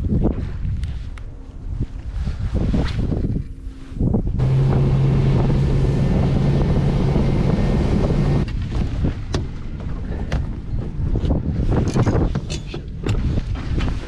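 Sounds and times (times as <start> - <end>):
wind buffeting microphone: 0.0 - 14.0
boat engine humming: 3.6 - 8.5.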